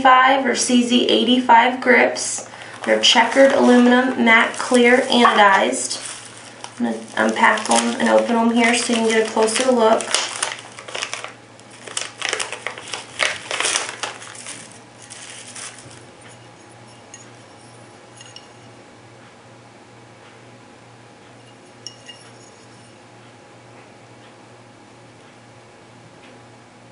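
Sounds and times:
low steady hum: 0.0 - 26.9
plastic bag crinkling: 2.3 - 16.3.

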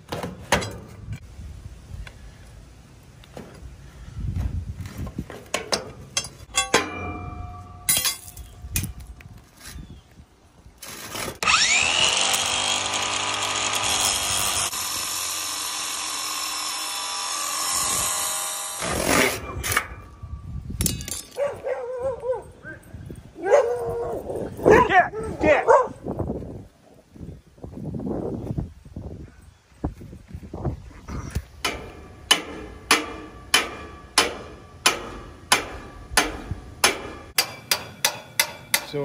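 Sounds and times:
knocks and clanks: 5.3 - 9.0, 31.6 - 39.0
angle grinder cutting steel: 11.4 - 19.9
dogs barking: 21.4 - 26.0.

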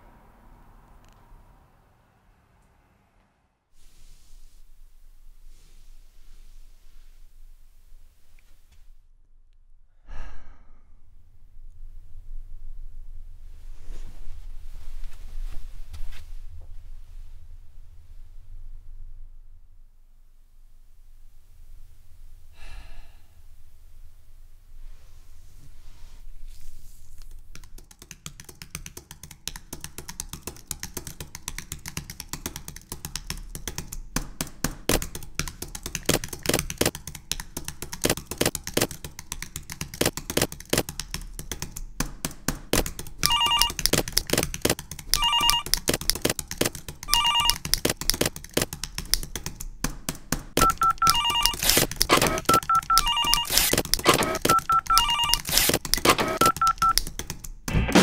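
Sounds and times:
second phone ringing: 43.2 - 43.8, 45.2 - 45.7, 47.1 - 47.6, 50.6 - 57.0
telephone ringing in trills: 43.2 - 43.8, 45.2 - 45.7, 47.1 - 47.6, 50.6 - 57.0
stapler clicks: 51.5 - 52.6, 53.5 - 57.1.

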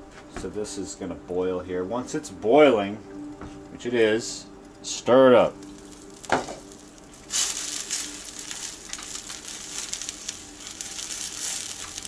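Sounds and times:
noodles sizzling in a frying pan: 5.4 - 12.0.

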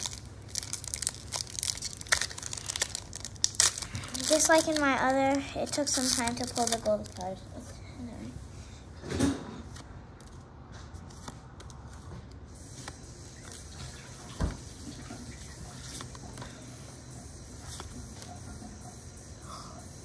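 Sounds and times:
card wrappers rustling: 0.0 - 7.6.

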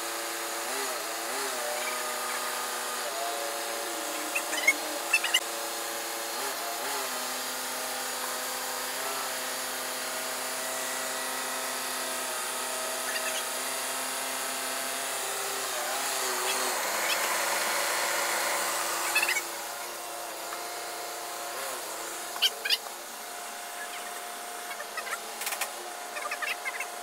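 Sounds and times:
loader engine running: 6.0 - 27.0.

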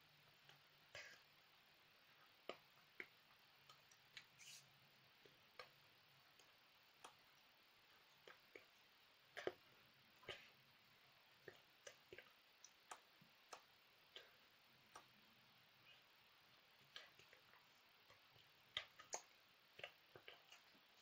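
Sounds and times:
faint small clicks and taps: 2.4 - 10.5, 11.4 - 15.2.

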